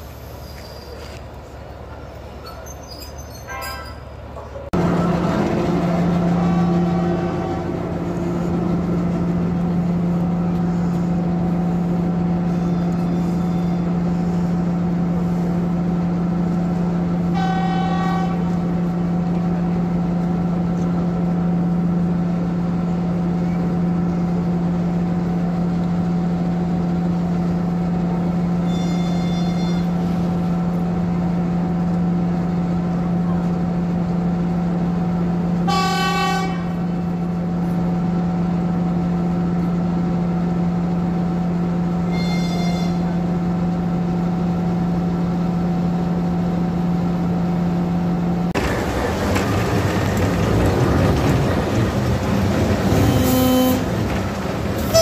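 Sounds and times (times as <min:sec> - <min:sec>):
diesel train engine drone: 0:00.0 - 0:55.0
train horn toots: 0:03.4 - 0:04.0, 0:06.2 - 0:08.0, 0:17.3 - 0:18.6, 0:28.7 - 0:30.0, 0:35.6 - 0:36.8, 0:42.1 - 0:43.2, 0:53.0 - 0:54.0, 0:54.8 - 0:55.0.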